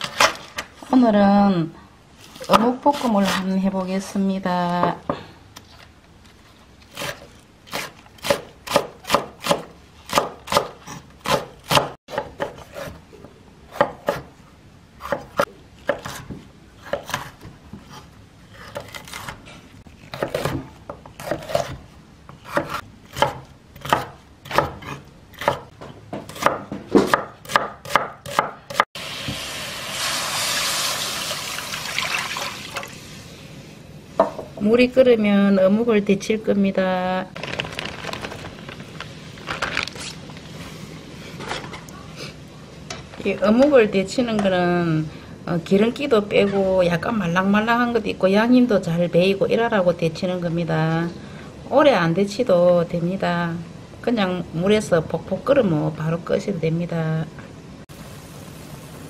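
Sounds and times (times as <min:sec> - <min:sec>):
knife chopping on wooden board: 0:22.4 - 0:28.8
water poured into frying pan: 0:29.4 - 0:33.1.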